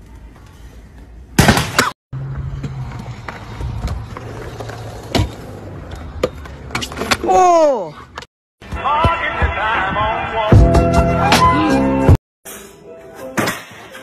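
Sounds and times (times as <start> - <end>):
scooter rolling on concrete: 2.2 - 7.1.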